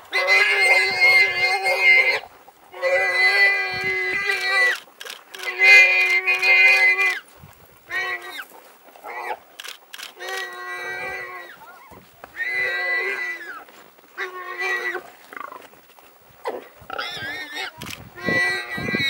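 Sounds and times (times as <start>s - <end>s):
warthog squealing in distress: 0.1s - 4.8s, 5.4s - 7.2s, 10.2s - 15.6s, 16.4s - 19.0s.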